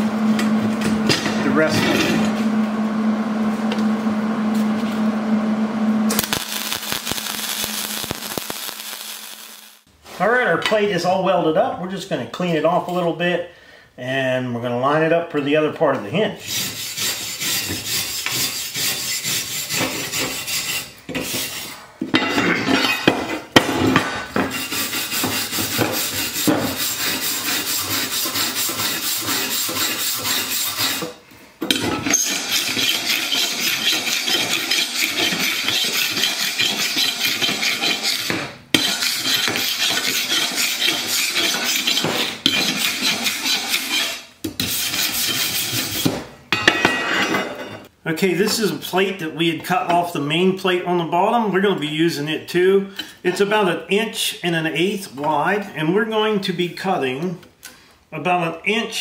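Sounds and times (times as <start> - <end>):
wire brush scrubbing steel: 16.4 - 21.8, 24.5 - 31.2, 32.0 - 46.2.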